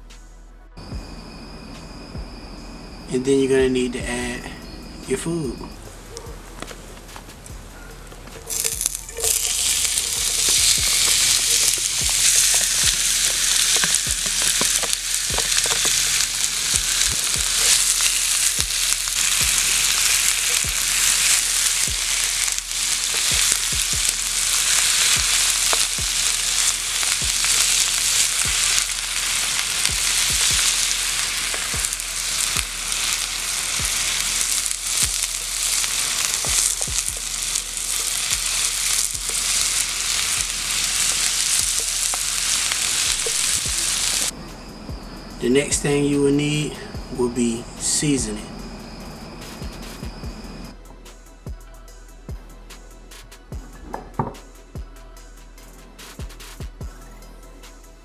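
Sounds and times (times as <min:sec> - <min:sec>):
food sizzling in hot oil: 0:08.4 - 0:44.4.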